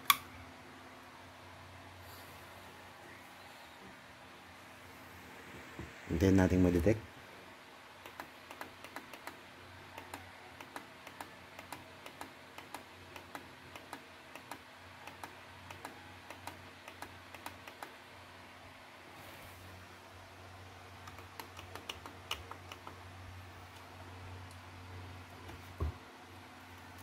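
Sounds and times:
low steady hum: 0.0s - 27.0s
laptop keys clicking: 8.0s - 9.4s, 10.0s - 18.0s, 21.0s - 23.0s.

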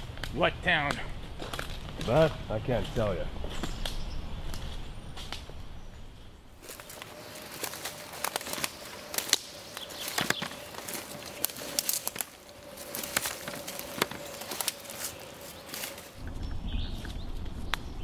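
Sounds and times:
footsteps through dry leaves: 6.6s - 16.2s
twigs snapping: 6.6s - 16.2s.

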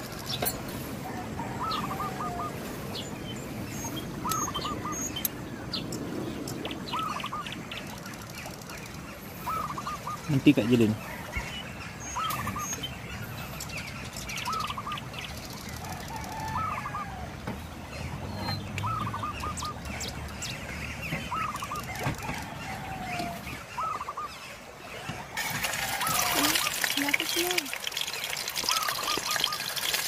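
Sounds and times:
water pouring or splashing: 25.3s - 30.0s.

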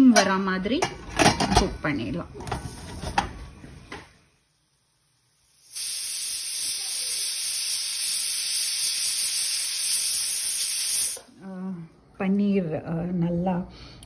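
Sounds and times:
pressure cooker steam hiss: 3.9s - 11.3s.

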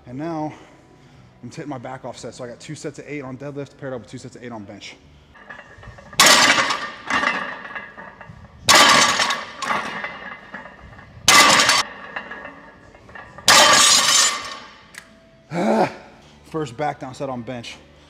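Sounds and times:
weight plates clanking: 5.4s - 14.8s.

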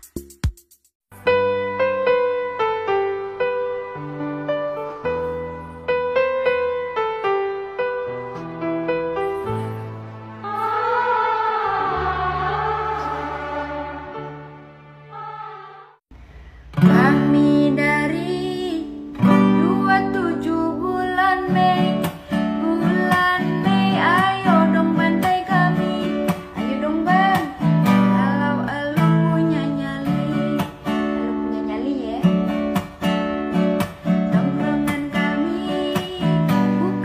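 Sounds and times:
acoustic guitar strumming: 16.7s - 37.0s
woman singing: 16.8s - 32.5s, 34.3s - 37.0s.

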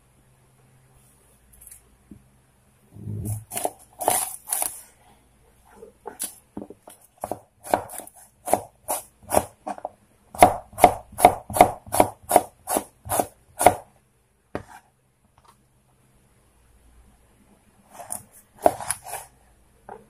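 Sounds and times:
knife chopping on wooden board: 3.1s - 4.7s, 6.1s - 13.8s, 18.6s - 19.1s.

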